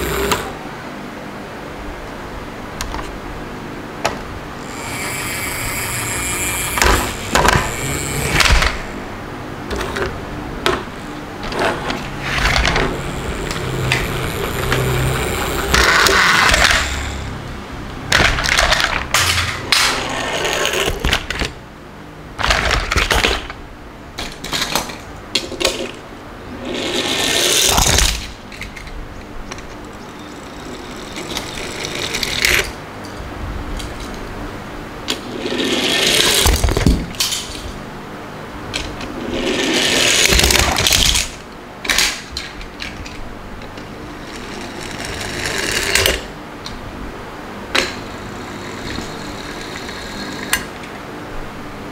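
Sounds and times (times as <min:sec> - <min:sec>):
toy cars rolling down wooden board: 0:11.5 - 0:17.3, 0:26.7 - 0:28.3, 0:35.2 - 0:36.9, 0:38.8 - 0:41.3, 0:44.3 - 0:46.3.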